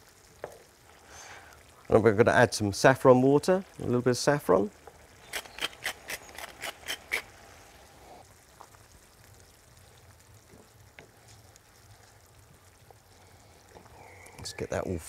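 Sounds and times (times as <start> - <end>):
food simmering faintly: 0.0 - 15.0
pepper mill crunching: 5.2 - 7.3.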